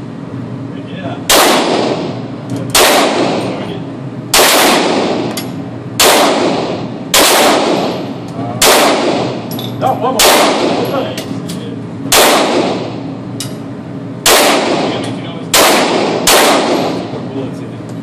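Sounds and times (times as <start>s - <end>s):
pistol shots echoing indoors: 1.3s - 3.6s, 4.3s - 5.4s, 6.0s - 9.4s, 10.2s - 10.9s, 12.1s - 13.0s, 14.2s - 17.2s.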